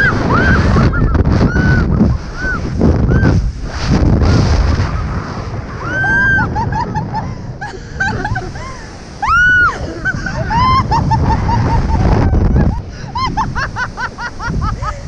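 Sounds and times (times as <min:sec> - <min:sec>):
women laughing: 0:00.0 - 0:02.6, 0:05.8 - 0:15.0
women screaming: 0:00.0 - 0:03.4, 0:05.8 - 0:06.9, 0:09.2 - 0:11.2
wind rumble on microphone: 0:00.0 - 0:15.0.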